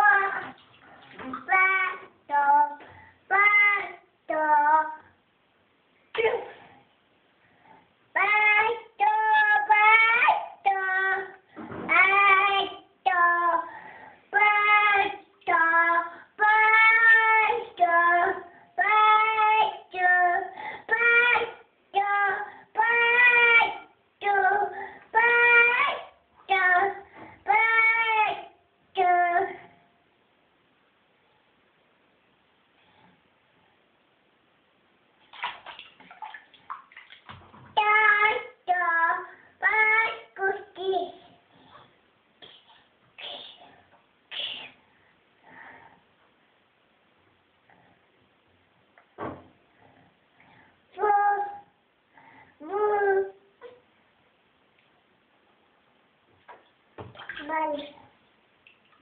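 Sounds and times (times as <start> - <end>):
water splashing in a bath: 0.0 - 2.0, 35.2 - 37.9, 56.5 - 59.0.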